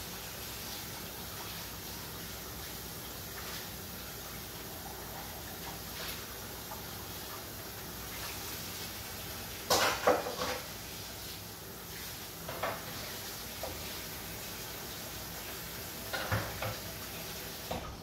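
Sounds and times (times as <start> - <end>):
steady background hiss: 0.0 - 18.0
dishes clattering in sink: 9.6 - 10.7, 12.4 - 13.9, 16.0 - 17.0.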